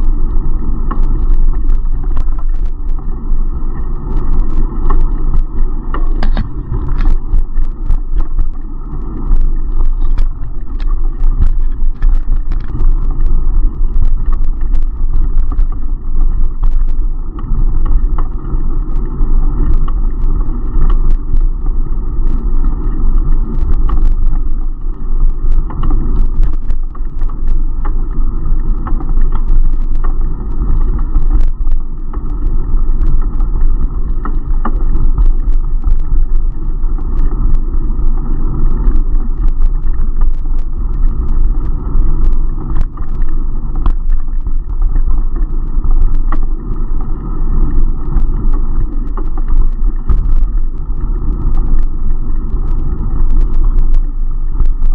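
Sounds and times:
road vibration: 0:00.0 - 0:54.9
wind rumble on microphone: 0:00.0 - 0:54.9
clicks and rattles from bumps: 0:03.8 - 0:08.6, 0:09.2 - 0:17.0.

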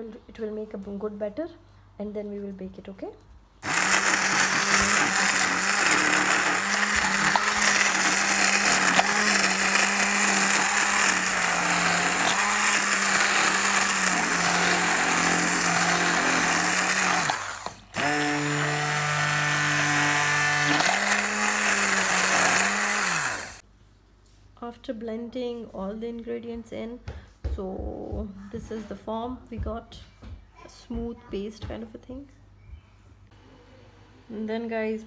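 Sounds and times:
immersion blender motor whine: 0:03.6 - 0:23.6.

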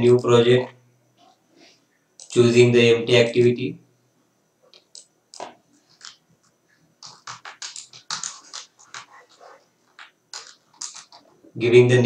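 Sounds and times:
keyboard keys clicking: 0:02.2 - 0:02.4, 0:07.0 - 0:11.2.

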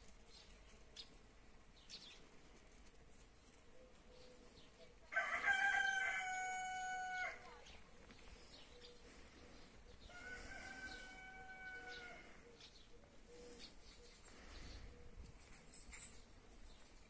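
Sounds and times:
rooster crowing: 0:05.1 - 0:07.5, 0:10.1 - 0:12.4.

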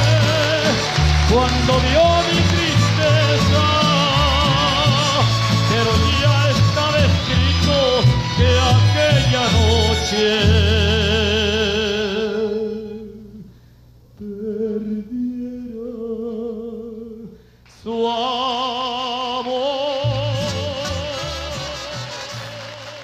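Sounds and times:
mariachi band playing: 0:00.0 - 0:13.0, 0:19.7 - 0:23.0
man singing with vibrato: 0:00.0 - 0:13.5, 0:14.2 - 0:23.0.

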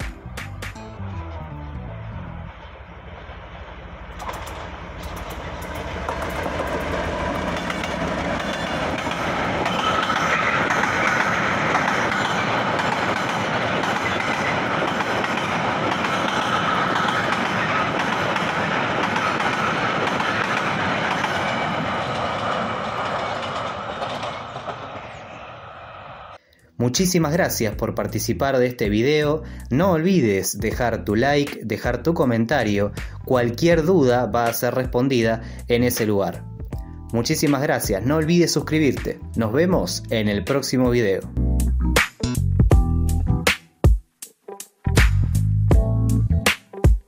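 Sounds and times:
diesel locomotive engine rumble: 0:00.0 - 0:26.4
train wheels clacking over rail joints: 0:04.1 - 0:25.2.

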